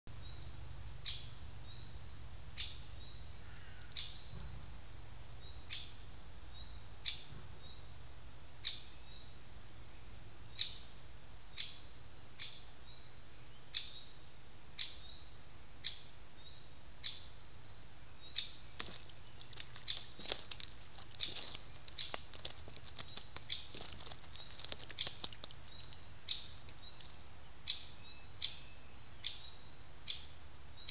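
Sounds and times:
bird chirping: 0:00.1 - 0:04.5, 0:05.2 - 0:08.0, 0:08.6 - 0:17.4, 0:18.0 - 0:30.9
bird splashing in water: 0:18.7 - 0:26.8.

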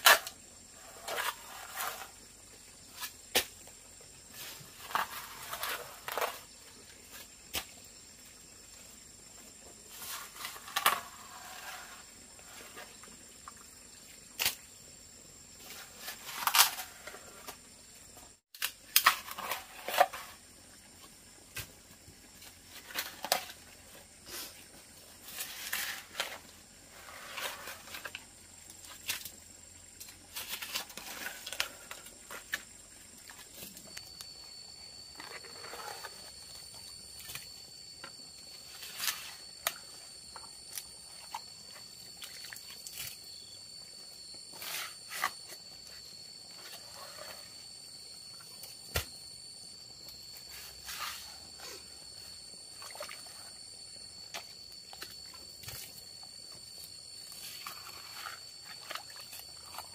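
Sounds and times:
digging tool scraping wet earth: 0:00.0 - 0:02.2, 0:04.3 - 0:06.5, 0:09.9 - 0:13.0, 0:18.9 - 0:20.4, 0:25.2 - 0:28.2, 0:35.1 - 0:36.6, 0:44.5 - 0:45.7, 0:50.4 - 0:51.9, 0:57.2 - 0:59.9.

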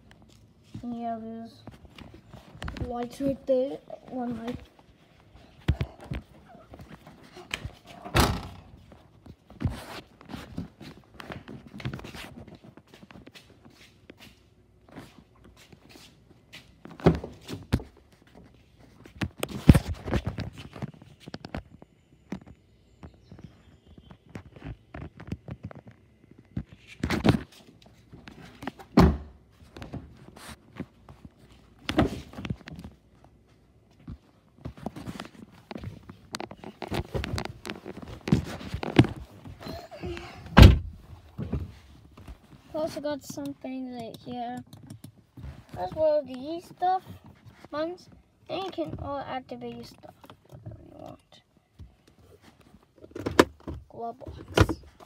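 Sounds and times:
small knocks and rustles: 0:00.0 - 0:51.1
heavy low thunk: 0:40.5 - 0:41.7
car trunk lid thump: 0:40.6 - 0:40.9.

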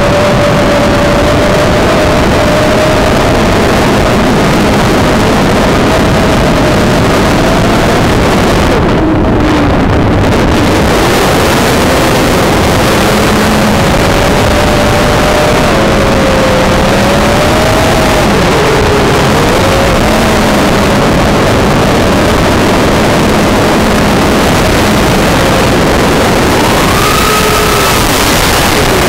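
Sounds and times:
wind on microphone: 0:00.0 - 0:29.0
drone motors whining: 0:08.8 - 0:29.0.

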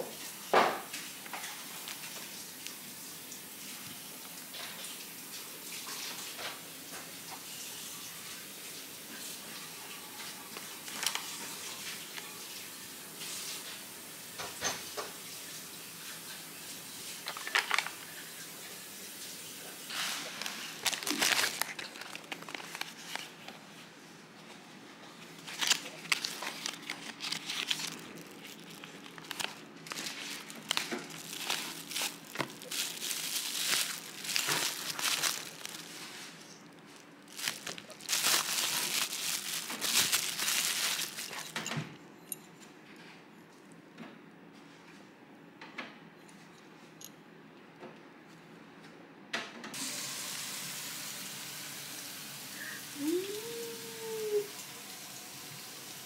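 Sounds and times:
crinkling and rustling handling: 0:00.0 - 0:02.8, 0:10.2 - 0:12.4, 0:17.1 - 0:18.2, 0:19.9 - 0:43.8.

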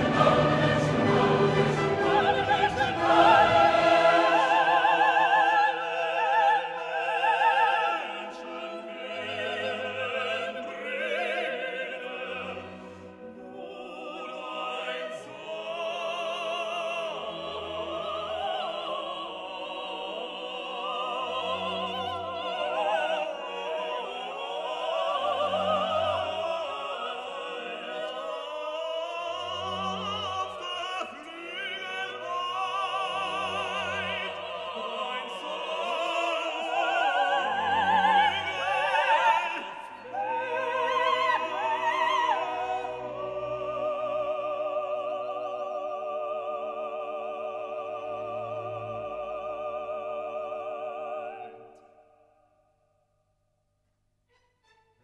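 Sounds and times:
orchestra playing: 0:00.0 - 0:07.2
operatic singing: 0:00.0 - 0:52.2.

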